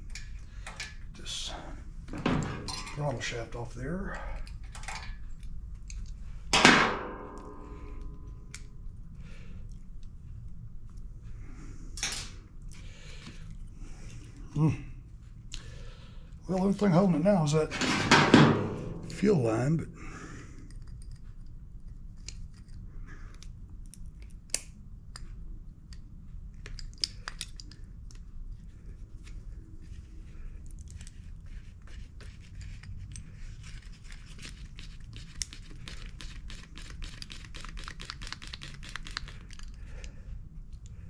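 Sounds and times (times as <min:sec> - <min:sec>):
steady low hum: 0:00.0 - 0:37.6.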